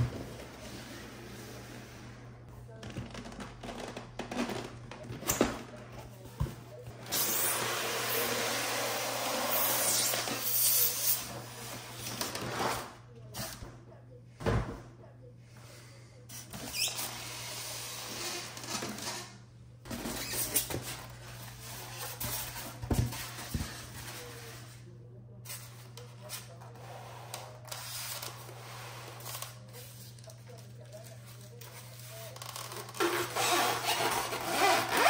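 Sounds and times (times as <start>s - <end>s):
low steady hum: 11.2s - 34.9s.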